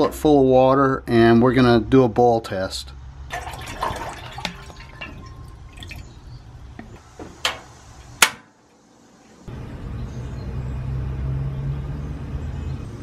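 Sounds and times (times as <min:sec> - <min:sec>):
water pouring into saucepan: 0:03.3 - 0:06.2.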